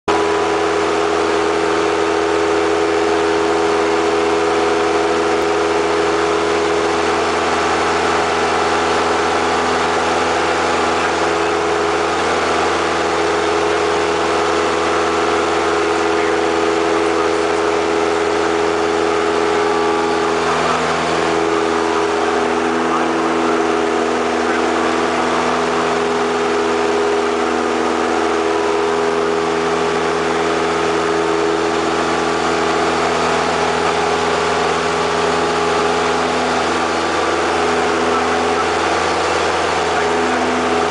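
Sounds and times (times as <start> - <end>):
airplane engine drone: 0.1 - 40.9.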